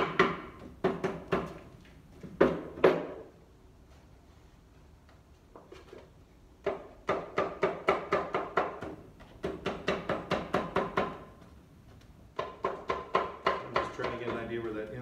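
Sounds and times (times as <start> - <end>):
hammer tapping on metal: 12.3 - 14.9.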